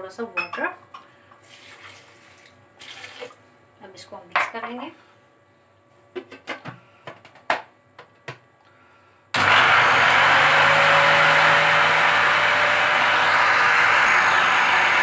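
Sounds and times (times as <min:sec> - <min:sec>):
blender motor grinding: 0:09.4 - 0:15.0.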